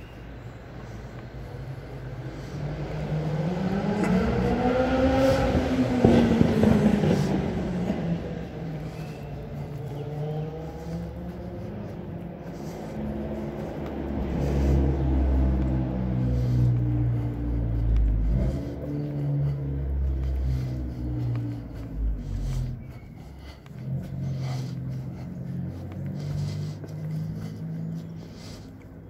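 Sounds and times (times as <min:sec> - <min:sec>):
car engine humming: 0:00.0 - 0:29.0.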